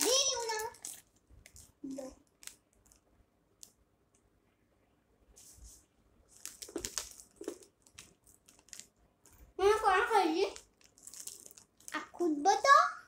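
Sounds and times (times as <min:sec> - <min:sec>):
plastic packet crinkling: 0:00.0 - 0:03.7, 0:06.3 - 0:09.4, 0:10.3 - 0:12.2.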